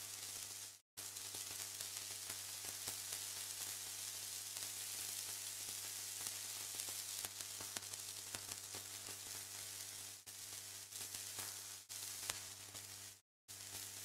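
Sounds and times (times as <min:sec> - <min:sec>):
static hiss: 0:00.0 - 0:14.0
faint crackles: 0:04.6 - 0:14.0.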